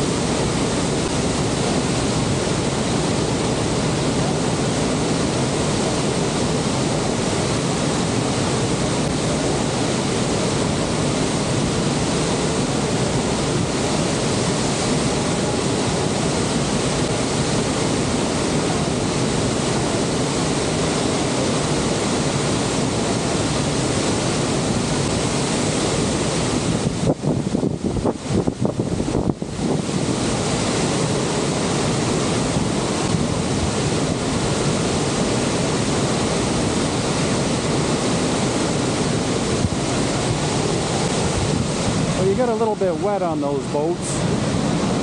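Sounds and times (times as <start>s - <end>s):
waterfall roaring: 0.0s - 45.0s
wind buffeting the microphone: 0.0s - 45.0s.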